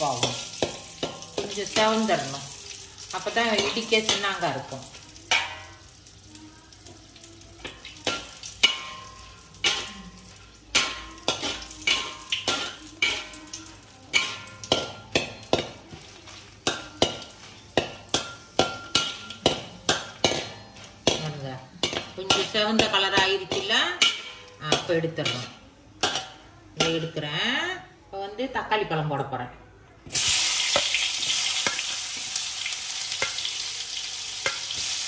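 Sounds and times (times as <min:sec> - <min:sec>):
faint oil sizzle: 0:00.0 - 0:27.1, 0:30.1 - 0:35.0
spatula scraping metal wok: 0:20.2 - 0:26.3.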